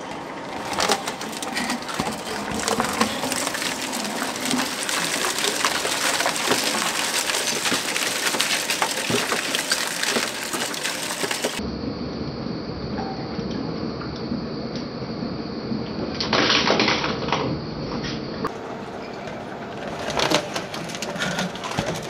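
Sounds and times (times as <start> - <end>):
shredder crushing metal foil: 0.0 - 11.6, 19.8 - 22.0.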